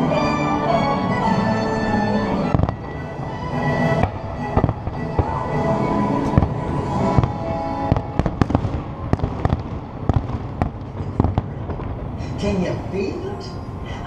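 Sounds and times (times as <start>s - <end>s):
music: 0.0s - 8.5s
fireworks bursting with sharp bangs: 2.4s - 12.7s.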